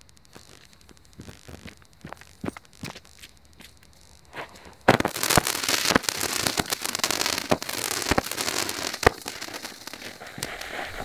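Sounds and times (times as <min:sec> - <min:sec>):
firework fountain hissing and crackling: 0:00.0 - 0:11.0
firework sharp cracks: 0:00.0 - 0:11.0.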